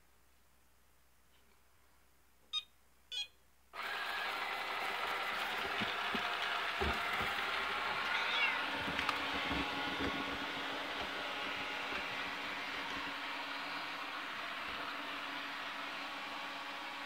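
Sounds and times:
vacuum motor and brushes running: 3.8s - 17.0s.

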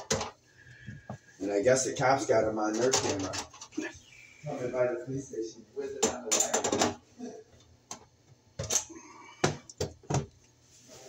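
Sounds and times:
metallic clatter of tools and wires: 2.7s - 3.8s, 6.0s - 7.0s, 7.9s - 9.0s.

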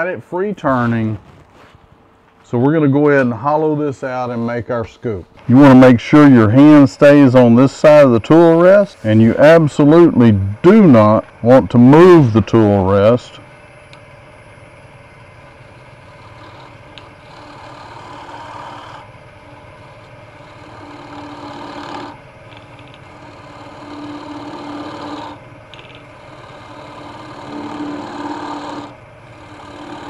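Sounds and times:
wood lathe humming: 5.4s - 30.0s
hollowing tool cutting wood: 15.2s - 30.0s.

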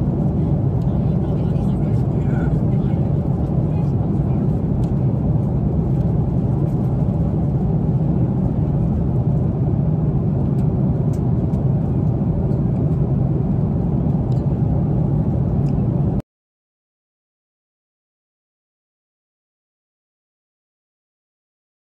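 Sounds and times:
airliner cabin drone: 0.0s - 16.2s.

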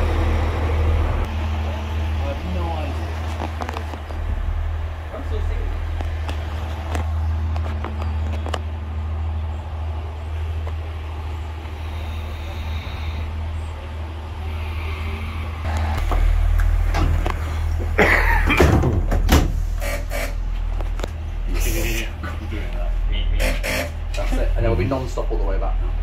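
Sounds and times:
diesel engine drone: 0.0s - 26.0s.

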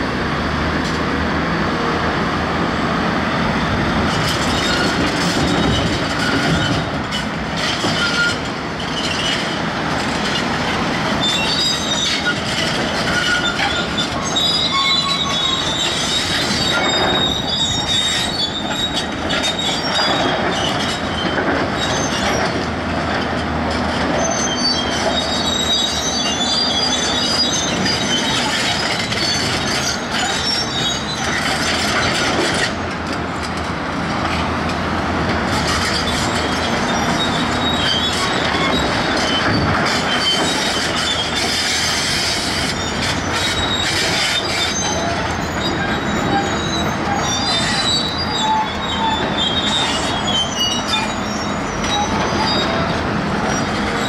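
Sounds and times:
high-pitched metallic squeals: 11.2s - 22.6s, 24.2s - 32.8s, 35.6s - 54.0s.

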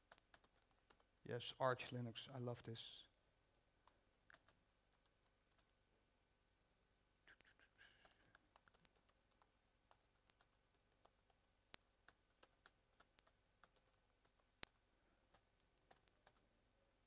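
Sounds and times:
typing on computer keyboard: 0.0s - 1.2s, 3.8s - 5.7s, 7.4s - 16.4s.

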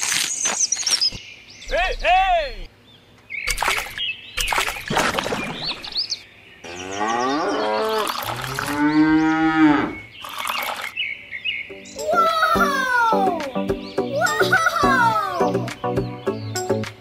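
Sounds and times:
cow mooing: 6.7s - 10.0s.

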